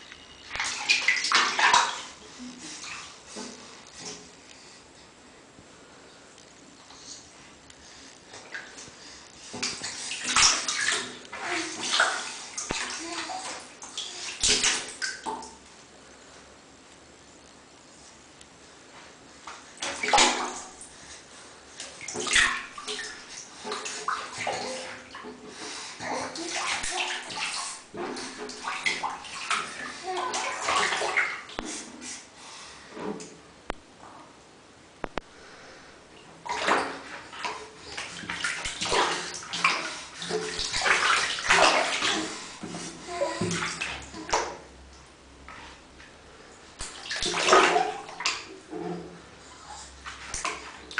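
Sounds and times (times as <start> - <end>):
bath water splashing: 0.0 - 4.3, 8.1 - 15.7, 19.5 - 31.9, 36.2 - 44.8, 46.8 - 48.7, 50.0 - 50.9.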